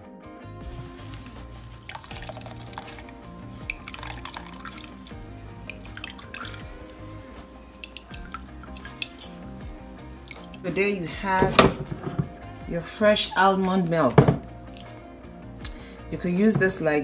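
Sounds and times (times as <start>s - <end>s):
background music: 0.0s - 17.0s
wet cloth squelching: 0.6s - 12.6s, 13.2s - 16.0s
milk dripping through a sieve: 0.7s - 12.0s, 13.4s - 15.0s.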